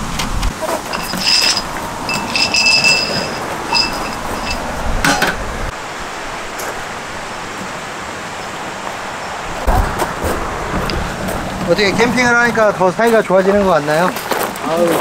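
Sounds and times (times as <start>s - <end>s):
hard objects clinking: 0.6s - 5.4s.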